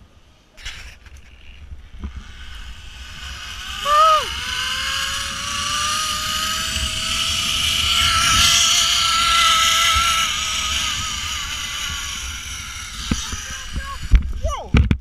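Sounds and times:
rushing wind: 0.0 - 15.0
zipline pulleys whining on cable: 0.6 - 14.9.

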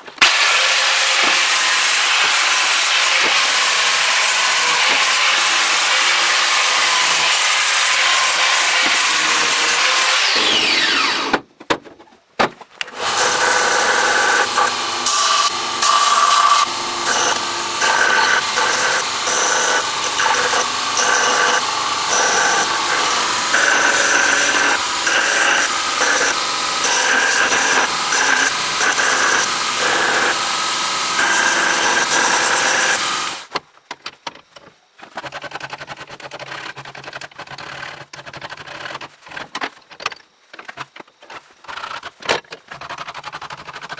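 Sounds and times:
angle grinder grinding metal: 0.0 - 11.4, 12.8 - 33.5
belt grinder grinding steel: 0.2 - 11.4, 12.8 - 33.5.

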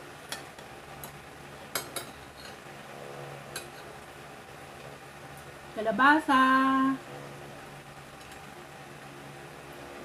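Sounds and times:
cutlery clinking on a plate: 0.3 - 2.6.

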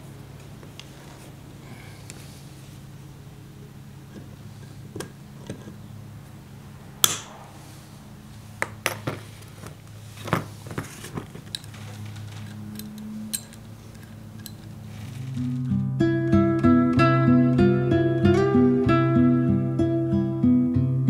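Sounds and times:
steady low hum: 0.0 - 21.0
metal tools clinking on workbench: 11.4 - 15.2.

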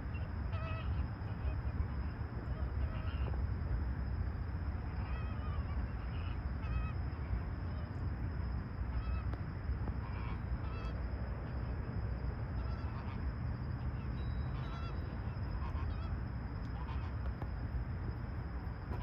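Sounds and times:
flamingos honking: 0.1 - 3.4, 5.0 - 7.0, 9.0 - 9.3, 10.0 - 11.7, 12.6 - 17.2.

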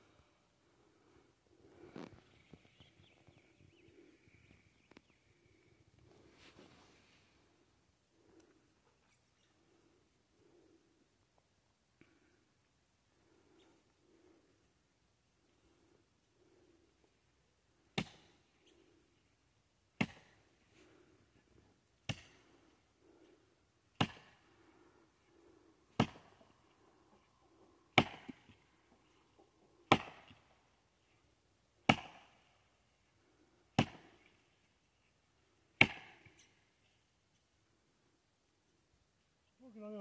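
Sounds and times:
axe chopping tree trunk: 18.0 - 18.3, 20.0 - 20.4, 22.1 - 22.4, 24.0 - 24.4, 25.9 - 26.4, 27.9 - 28.6, 29.9 - 30.4, 31.9 - 32.5, 33.8 - 34.2, 35.8 - 36.4.

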